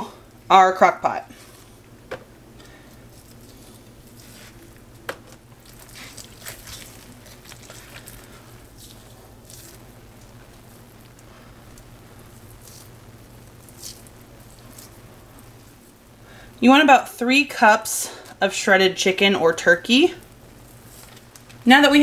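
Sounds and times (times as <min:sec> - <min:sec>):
low steady hum: 0:00.0 - 0:22.0
wet squishing and tearing meat: 0:02.6 - 0:15.9, 0:20.6 - 0:21.6.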